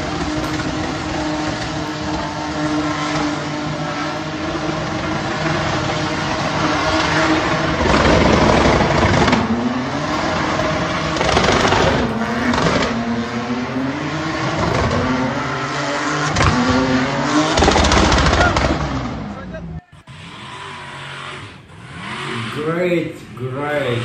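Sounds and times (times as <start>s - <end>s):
engine revving hard: 0.0s - 24.0s
tyres squealing: 17.5s - 24.0s.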